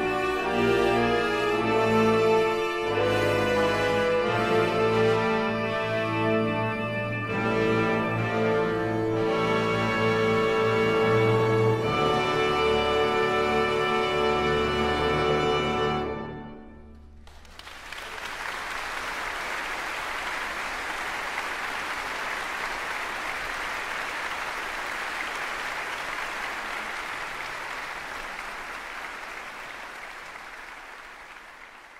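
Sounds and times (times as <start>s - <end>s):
crowd applause: 17.2s - 31.9s.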